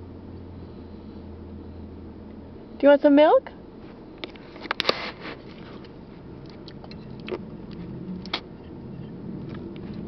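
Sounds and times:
road traffic rumble: 0.0 - 10.0
toddler chewing: 5.5 - 10.0
mouth clicks and smacks: 6.4 - 8.7.

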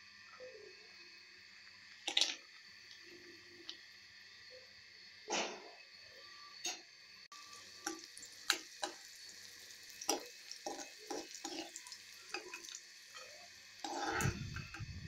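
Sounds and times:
nuts sizzling in hot fat: 0.0 - 15.0
steel ladle scraping a pan: 13.1 - 14.8.

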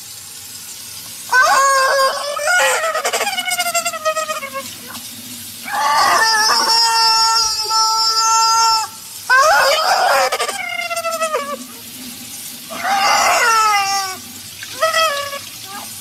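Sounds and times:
tap water running: 0.0 - 16.0
rubber chicken squawking: 1.3 - 5.0, 5.7 - 11.8, 12.7 - 16.0.

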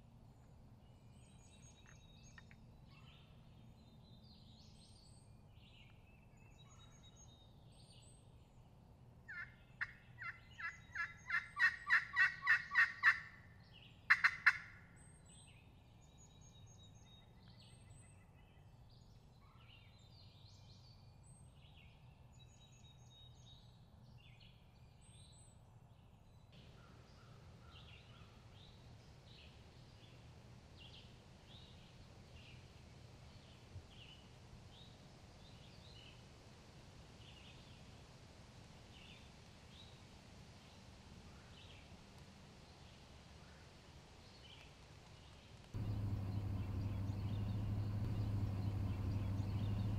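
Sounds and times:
songbird chirps: 0.1 - 36.3, 44.2 - 49.9
turkey calling: 9.3 - 13.3, 14.1 - 14.7.

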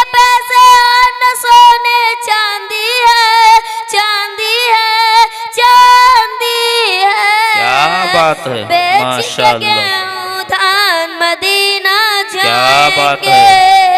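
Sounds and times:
high-pitched voice singing: 5.6 - 13.9.

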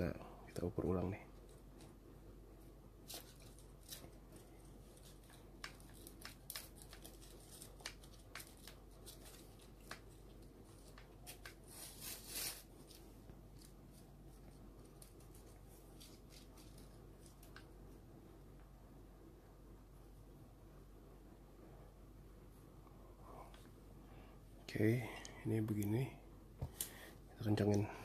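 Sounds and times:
small clicks and rubs of parts: 3.1 - 17.7
scraping rustle: 10.8 - 17.5.

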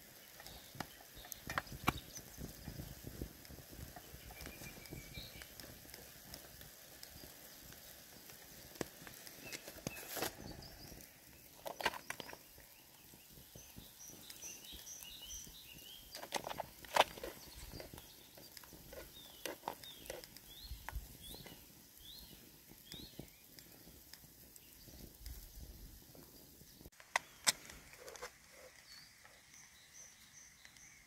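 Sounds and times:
small birds chirping: 0.0 - 31.0
utensil scraping metal tin: 16.1 - 18.0.

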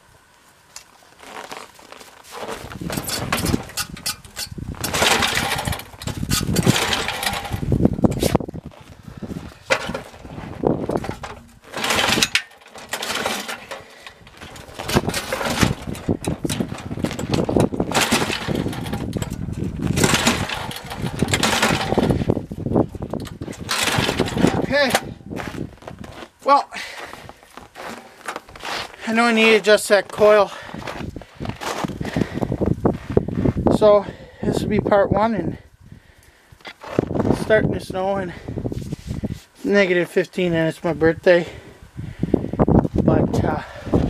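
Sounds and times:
pull-starting engine: 2.3 - 8.8, 9.5 - 25.2.

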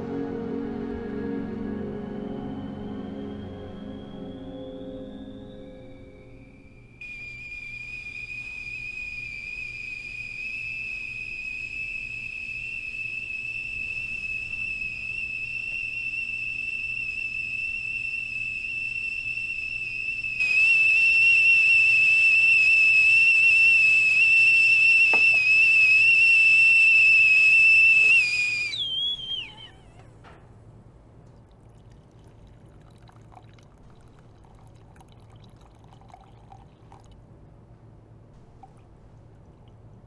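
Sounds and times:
stovetop kettle whistling: 1.3 - 30.2, 35.4 - 37.0.

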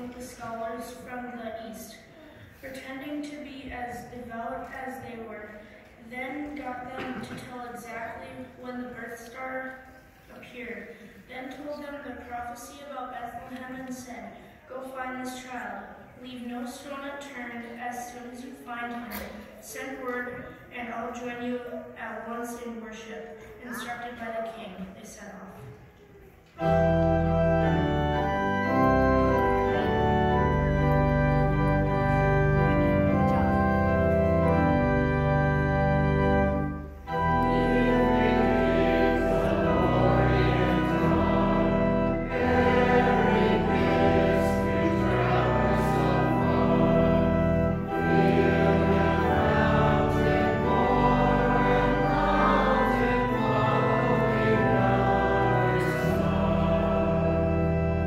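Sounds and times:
organ playing sustained chords: 26.6 - 58.0
voices singing along: 37.1 - 57.8.

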